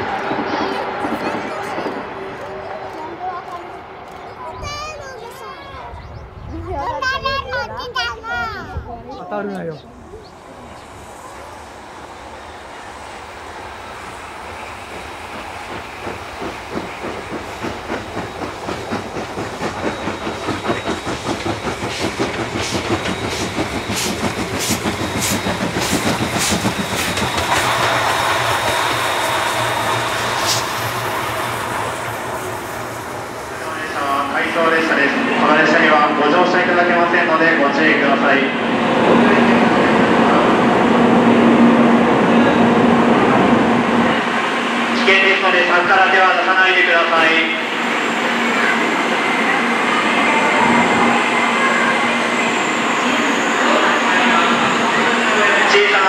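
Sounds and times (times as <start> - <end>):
train wheel and air rush: 9.9 - 56.0
steam hissing: 10.0 - 56.0
train wheels clacking on rail joints: 14.8 - 32.1.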